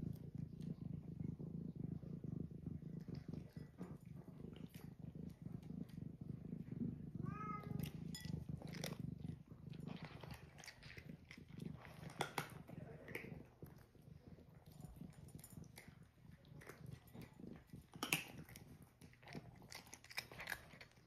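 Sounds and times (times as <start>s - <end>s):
cat purring: 0.0s - 21.0s
cats crunching dry kibble: 0.0s - 21.0s
cat meowing: 7.2s - 7.9s.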